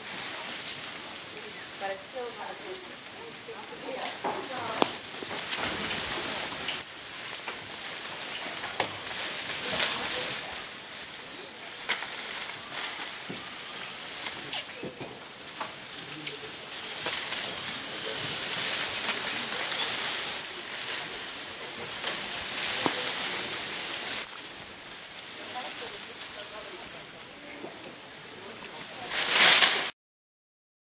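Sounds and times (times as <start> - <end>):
monkeys chirping and squeaking: 0.4 - 3.0, 4.4 - 8.6, 9.2 - 19.2, 19.8 - 20.6, 21.7 - 22.4, 24.2 - 24.4, 25.0 - 25.2, 25.8 - 27.1.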